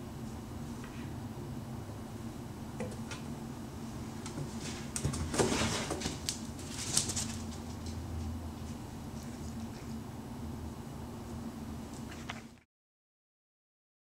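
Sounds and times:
cats scrambling in wooden drawer: 4.3s - 7.9s.

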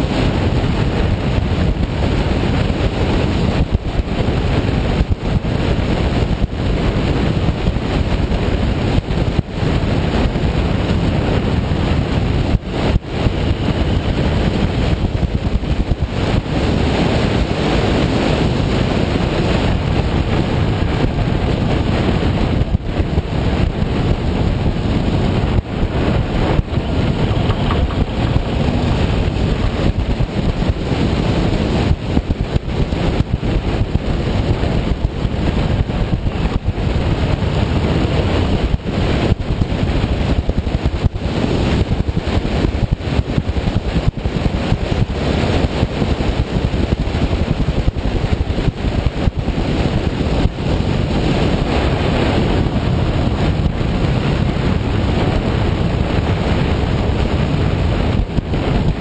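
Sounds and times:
road noise: 0.0s - 40.4s
motorcycle engine running: 0.0s - 59.0s
wind buffeting microphone: 0.0s - 59.0s.

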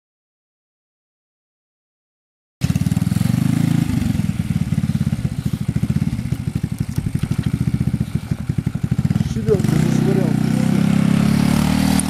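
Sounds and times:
motorcycle engine putter: 4.8s - 10.0s.

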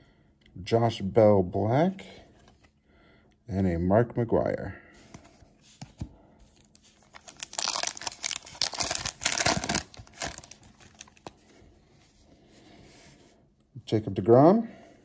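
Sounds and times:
wrapper tearing and crinkling: 7.0s - 11.3s.

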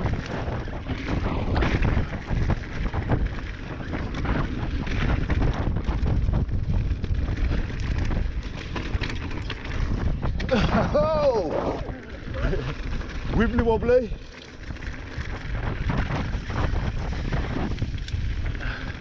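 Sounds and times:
bike rattling clicks and knocks: 0.0s - 19.0s
wind buffeting microphone: 0.0s - 19.0s
tyre roar: 10.4s - 12.8s.

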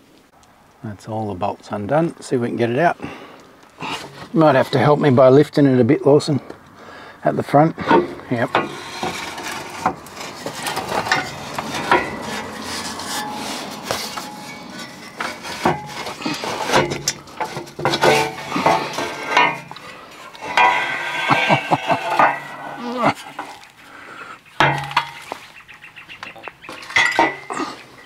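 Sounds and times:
metal exhaust clanking and scraping: 3.8s - 5.5s, 7.5s - 28.0s
metal knocks and clatter: 7.8s - 23.8s, 24.6s - 25.5s, 26.1s - 27.7s.

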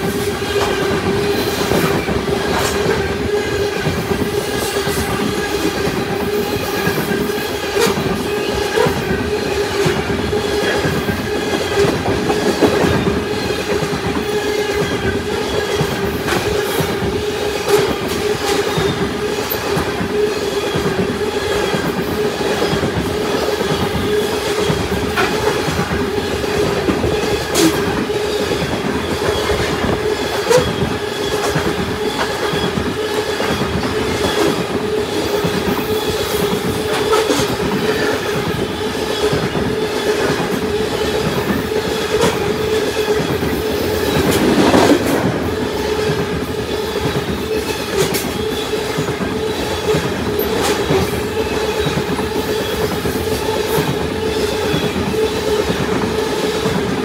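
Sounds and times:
steel wheels rumbling on rail: 0.0s - 57.0s.

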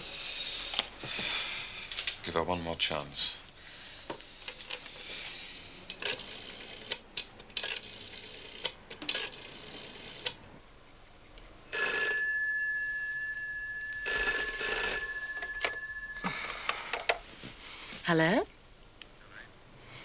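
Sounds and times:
rotary telephone dial clicking: 5.9s - 10.4s
telephone bell ringing: 11.7s - 17.1s.

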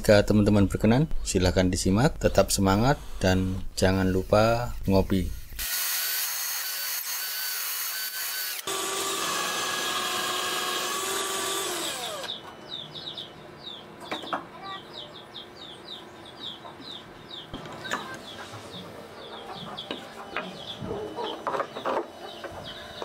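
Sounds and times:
drill boring through wood: 5.6s - 12.4s
birds chirping: 10.9s - 23.0s.

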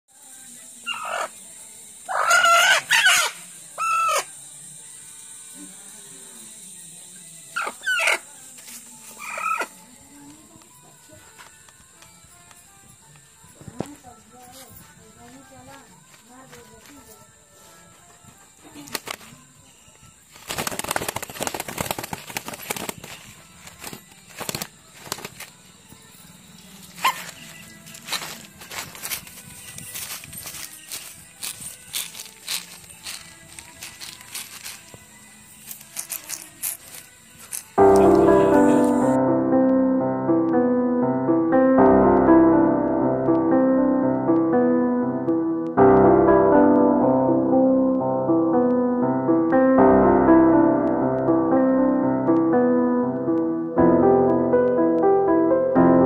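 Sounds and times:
hen squawking: 0.9s - 1.3s, 2.1s - 4.3s, 7.6s - 8.2s, 9.2s - 9.8s
chicken wings rustling on plastic sack: 20.3s - 25.5s.

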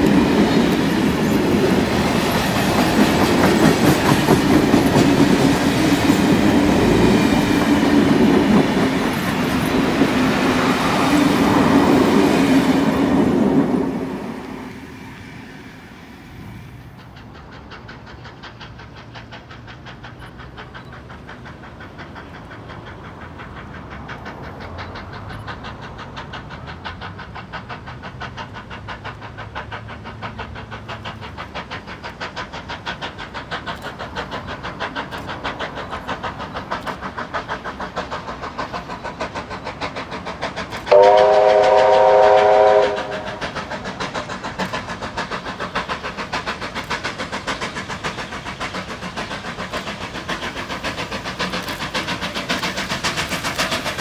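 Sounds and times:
steam locomotive exhaust beats: 0.0s - 54.0s
steam whistle blast: 40.9s - 43.4s.

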